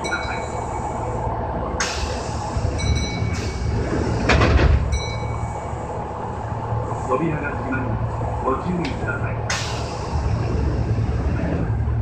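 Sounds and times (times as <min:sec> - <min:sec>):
rush of noise: 0:00.0 - 0:12.0
train humming: 0:00.0 - 0:12.0
hiss: 0:01.8 - 0:02.7, 0:09.5 - 0:11.1.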